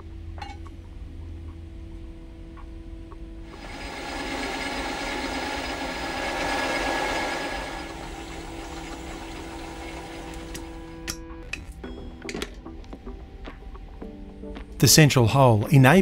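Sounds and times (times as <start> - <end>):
drill boring through brass: 3.5 - 11.0
lathe humming: 3.5 - 11.0.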